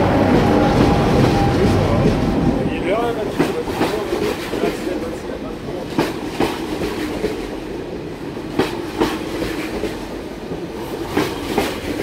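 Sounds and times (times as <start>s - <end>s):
train rumbling past: 0.0s - 12.0s.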